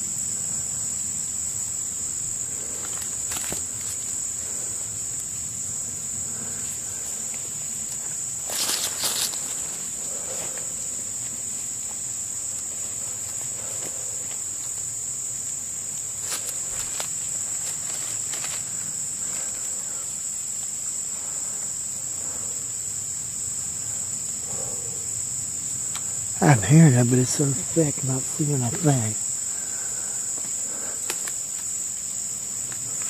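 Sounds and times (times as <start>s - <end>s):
insects chorus: 0.0s - 33.0s
rustling and footsteps: 2.1s - 22.6s, 27.2s - 33.0s.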